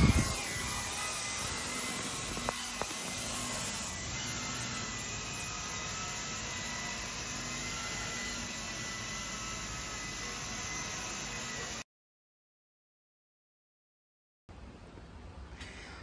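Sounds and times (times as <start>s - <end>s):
helicopter rotor whirring: 0.0s - 11.8s
high whine of electric motors: 0.0s - 11.8s.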